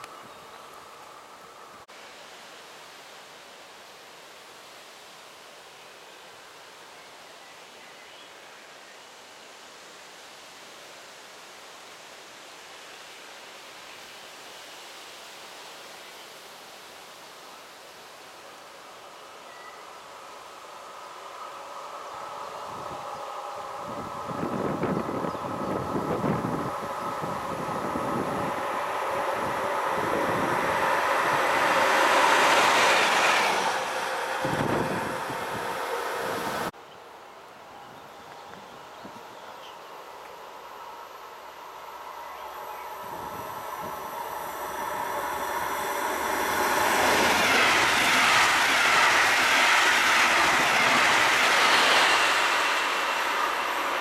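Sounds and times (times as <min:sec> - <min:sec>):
electric locomotive passing: 0:17.9 - 0:54.0
train wheels rushing on rails: 0:20.2 - 0:36.7, 0:41.2 - 0:54.0.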